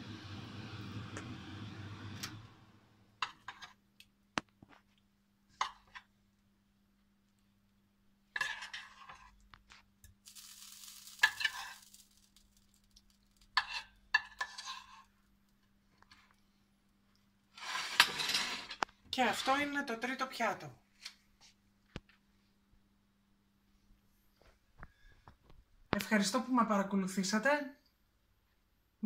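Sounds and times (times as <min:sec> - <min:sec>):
fork scraping ceramic plate: 0:08.4 - 0:09.4, 0:13.6 - 0:15.1, 0:17.6 - 0:18.8
steady hiss: 0:10.2 - 0:12.9.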